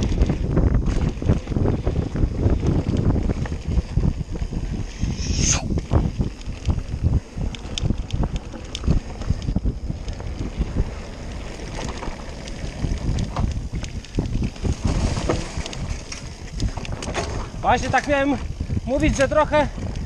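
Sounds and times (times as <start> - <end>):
mountain bike rattling on trail: 0.0 - 5.1, 5.7 - 20.0
wind buffeting microphone: 0.0 - 20.0.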